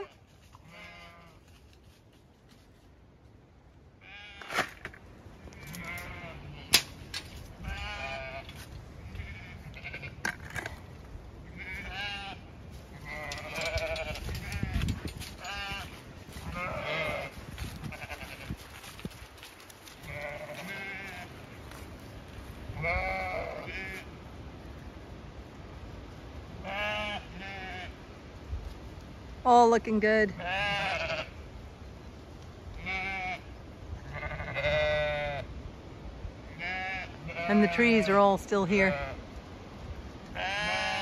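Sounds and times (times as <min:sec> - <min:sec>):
sheep bleating: 0:00.0 - 0:01.4, 0:04.0 - 0:04.5, 0:05.5 - 0:06.8, 0:07.6 - 0:10.2, 0:11.5 - 0:14.8, 0:15.4 - 0:18.6, 0:20.0 - 0:21.3, 0:22.8 - 0:24.0, 0:26.6 - 0:27.9, 0:30.4 - 0:31.4, 0:32.8 - 0:35.4, 0:36.6 - 0:39.2, 0:40.4 - 0:41.0.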